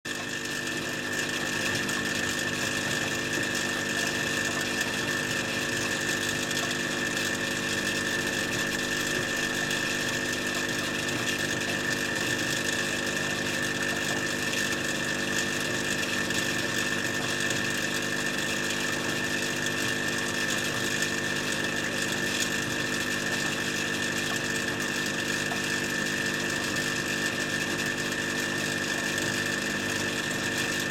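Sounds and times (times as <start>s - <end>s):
machine hum with high whine: 0.1s - 30.9s.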